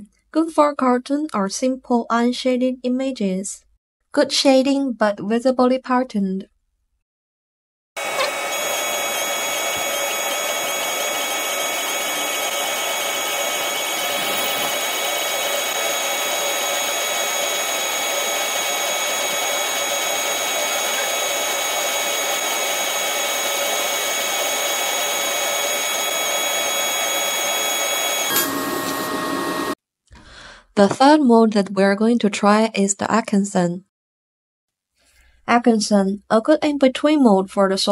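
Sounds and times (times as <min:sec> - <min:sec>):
laser engraver buzzing whine: 0:08.0 - 0:29.8.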